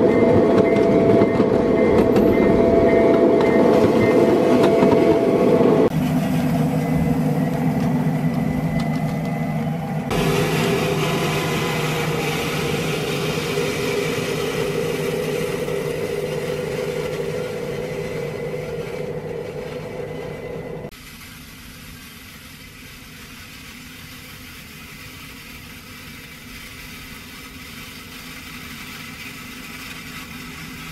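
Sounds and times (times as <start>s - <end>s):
locomotive motor hum: 0.0s - 20.9s
snow plow scraping icy snow: 3.7s - 30.9s.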